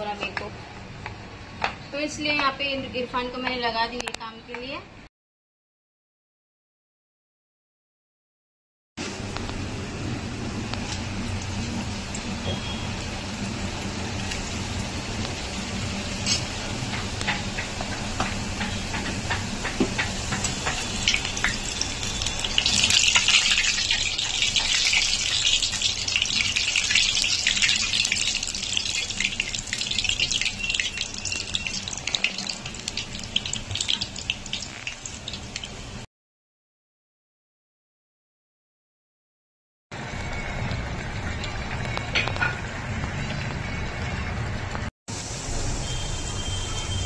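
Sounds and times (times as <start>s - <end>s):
oil sizzling and popping: 9.0s - 36.1s.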